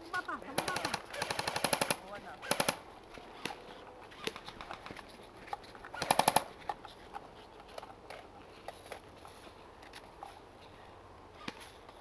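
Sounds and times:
airsoft rifle shots: 0.5 - 2.8, 6.0 - 6.5.

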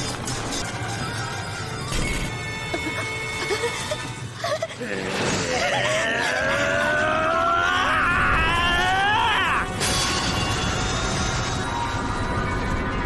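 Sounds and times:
background music: 0.0 - 13.0
person battle scream: 5.4 - 9.8.

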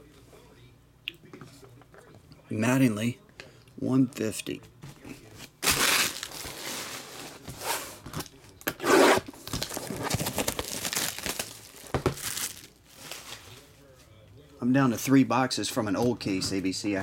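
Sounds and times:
plastic wrap ripping: 5.6 - 7.0, 8.8 - 13.6
plastic wrap crinkling: 5.6 - 7.4, 9.4 - 13.8.

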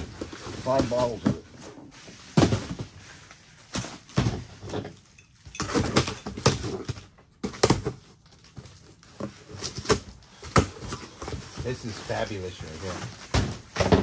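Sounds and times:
cardboard scraping and tearing: 0.0 - 3.0, 8.7 - 14.0.

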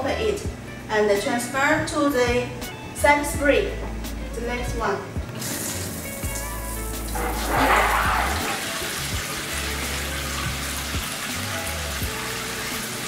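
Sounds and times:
shower jets spraying water: 5.4 - 13.0.

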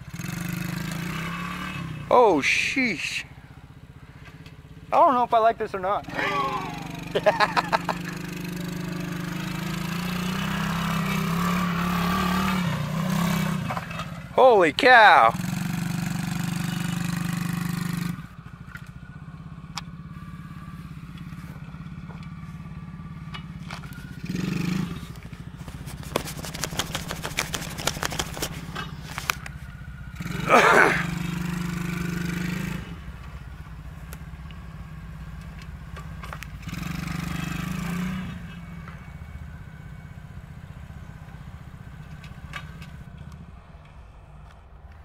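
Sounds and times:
atv engine running: 0.0 - 45.0
clicks and rattles: 25.7 - 29.5.

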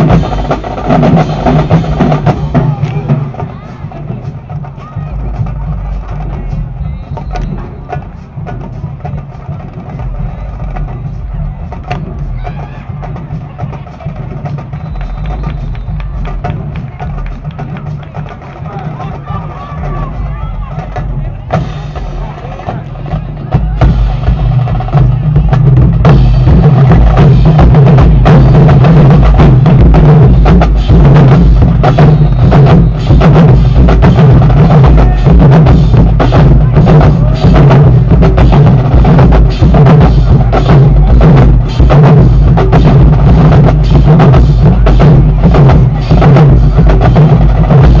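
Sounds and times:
drumline playing a fast cadence: 0.0 - 48.0
heavy bass drums: 0.0 - 48.0.

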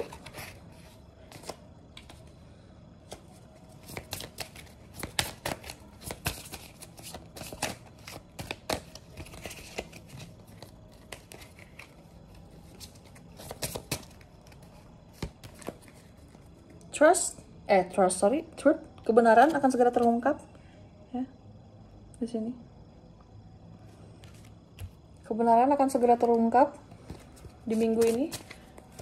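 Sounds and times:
cards being shuffled: 0.0 - 2.3, 3.0 - 16.5, 27.0 - 29.0.

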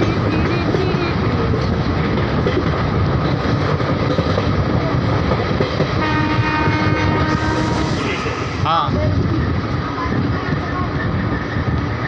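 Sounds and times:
moving train rumble: 0.0 - 12.0
train horn: 6.0 - 8.6.

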